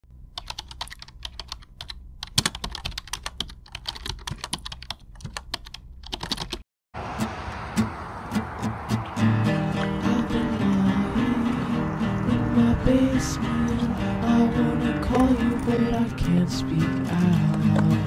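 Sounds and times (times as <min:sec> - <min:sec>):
typing on a keyboard: 0:00.4 - 0:06.6.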